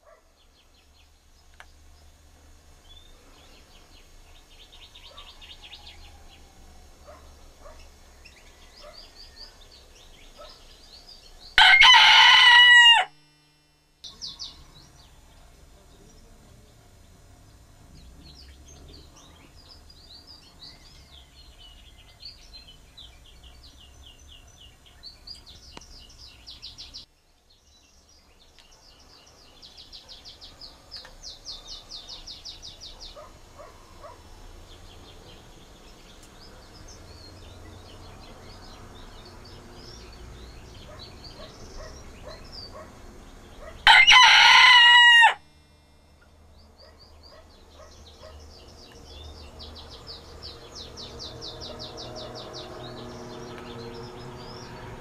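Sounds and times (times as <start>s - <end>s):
small birds chirping: 0.0s - 12.2s, 13.2s - 55.0s
rooster crowing: 5.1s - 7.2s, 11.6s - 13.4s, 43.8s - 45.8s.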